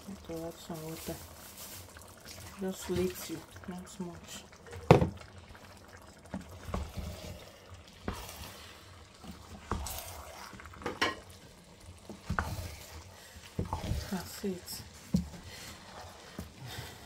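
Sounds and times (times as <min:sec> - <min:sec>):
spatula stirring simmering rice: 0:04.7 - 0:17.0.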